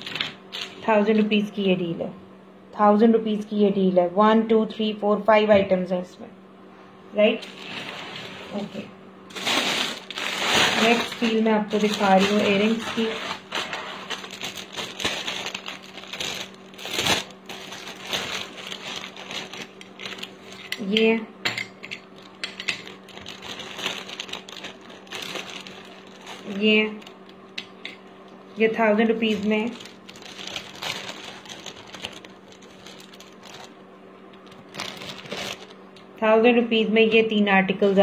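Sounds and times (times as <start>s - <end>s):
faint steady hum: 0.0s - 38.0s
plastic packets crinkling: 9.3s - 20.6s, 22.2s - 27.4s, 29.2s - 36.0s.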